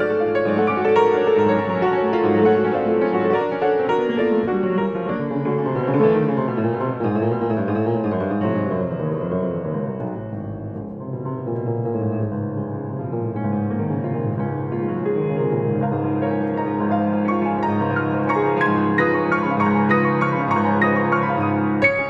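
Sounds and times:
solo classical piano: 0.0s - 22.0s.

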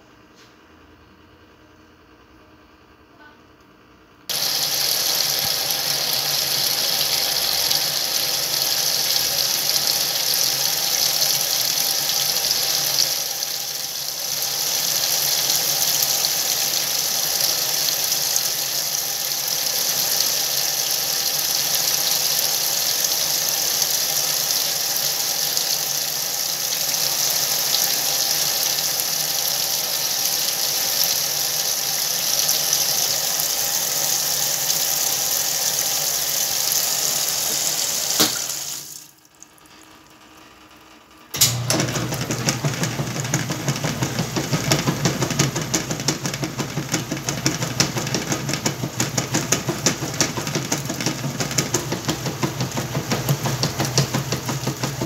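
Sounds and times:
water pouring into washing machine: 4.3s - 40.1s, 41.4s - 55.0s.

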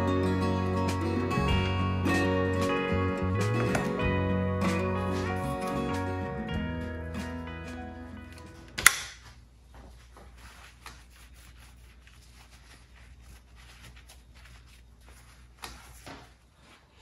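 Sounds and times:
gloved hands rustling: 3.4s - 17.0s
sharp click: 8.8s - 9.2s.

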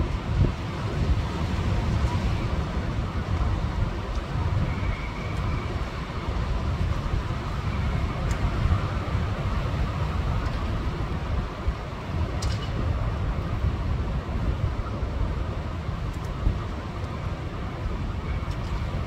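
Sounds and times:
storm wind buffeting microphone: 0.0s - 19.0s.

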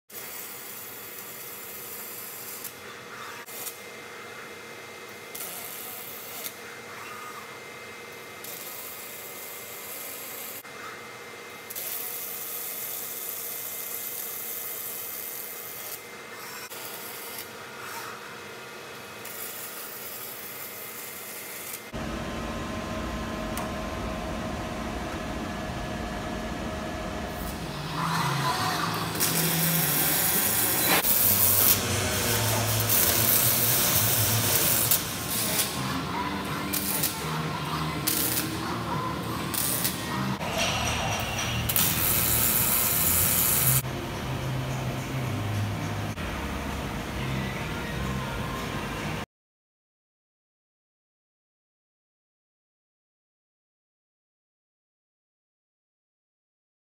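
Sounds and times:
welding arc hissing and crackling: 0.1s - 3.8s, 5.3s - 6.6s, 8.4s - 10.6s, 11.7s - 16.0s, 16.7s - 17.6s, 19.1s - 43.8s
machine hum: 21.9s - 49.2s.

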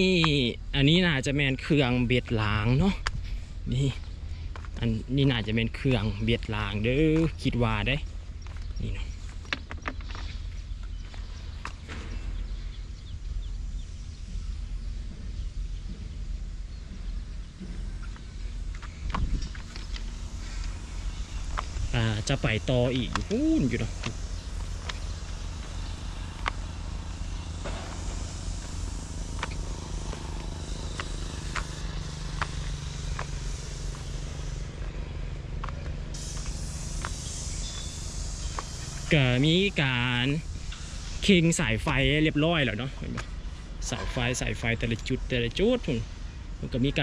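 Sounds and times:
wind rumbling on microphone: 0.0s - 37.1s
footsteps on gravel: 3.0s - 12.4s, 17.6s - 39.2s
faint bird chirps: 37.1s - 38.7s.

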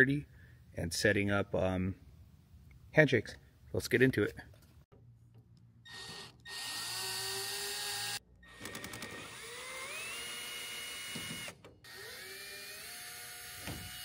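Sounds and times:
cordless drill whining: 5.9s - 14.0s.

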